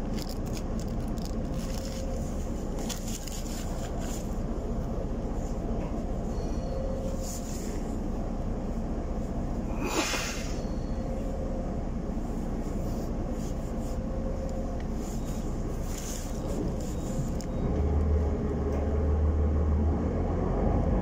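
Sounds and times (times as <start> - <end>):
bus engine idling: 0.0 - 21.0
air hiss: 9.7 - 10.6.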